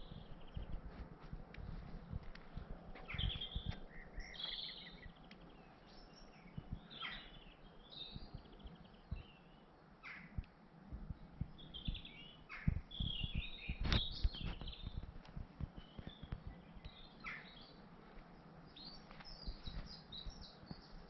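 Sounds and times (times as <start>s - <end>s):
soft low thumps: 0.0s - 5.1s, 10.3s - 17.0s
songbirds chirping and trilling: 0.0s - 21.0s.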